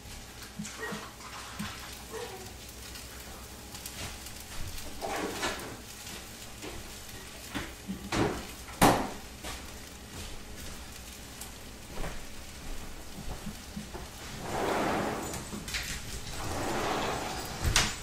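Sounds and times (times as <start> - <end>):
rice sizzling in a skillet: 0.0 - 18.0
spatula scraping skillet: 3.9 - 6.2, 14.1 - 18.0.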